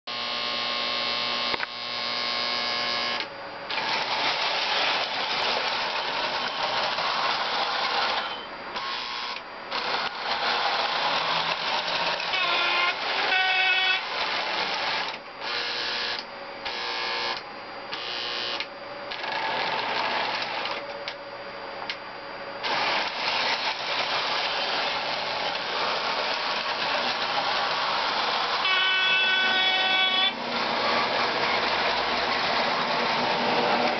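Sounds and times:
model train running: 3.7 - 15.2, 22.6 - 33.9
model train horn: 12.1 - 14.2, 28.5 - 31.1.

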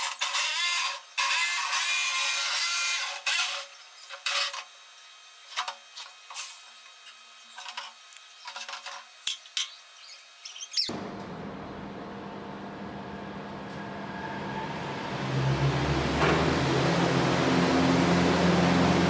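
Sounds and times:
jigsaw cutting plastic: 0.0 - 4.7
steady hum: 10.9 - 19.0.

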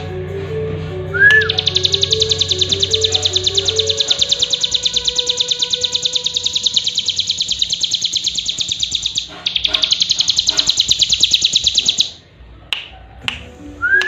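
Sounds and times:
bird singing fast high trill: 1.2 - 12.2.

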